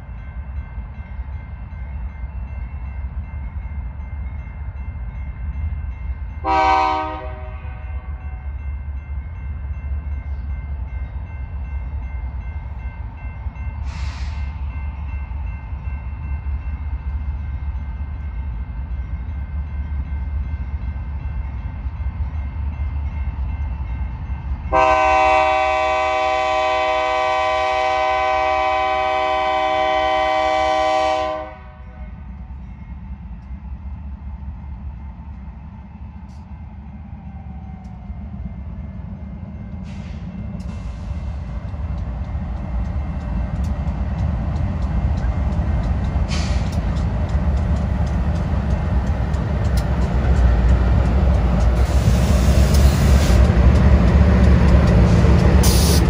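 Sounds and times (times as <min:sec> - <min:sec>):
train rumble: 0:00.0 - 0:56.0
locomotive air horn: 0:06.4 - 0:08.1, 0:24.7 - 0:32.1.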